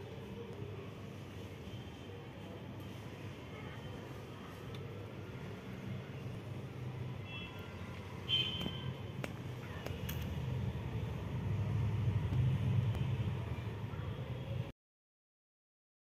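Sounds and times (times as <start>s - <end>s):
motor vehicle rumble: 8.6s - 14.2s.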